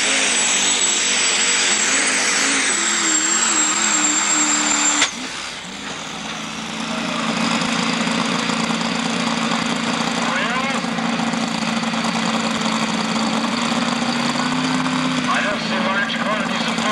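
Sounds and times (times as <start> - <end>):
high whine: 0.0 - 7.4
racing truck engine: 0.0 - 16.9.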